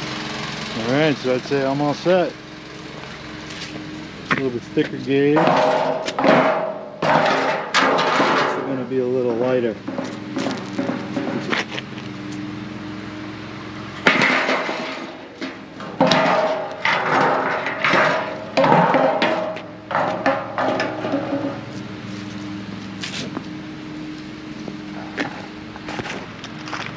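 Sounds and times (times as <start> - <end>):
low engine hum: 0.0 - 26.9
clattering and handling noises: 3.5 - 8.9, 9.8 - 12.5, 14.0 - 23.6, 24.2 - 26.9.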